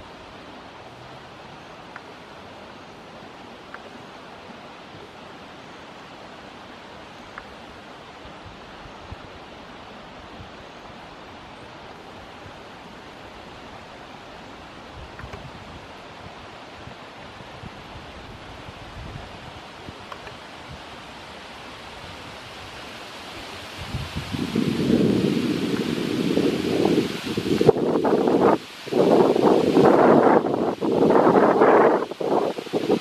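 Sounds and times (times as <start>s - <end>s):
river water rushing over shallows: 0.0s - 33.0s
faint short ticks: 15.2s - 15.5s, 20.0s - 20.4s.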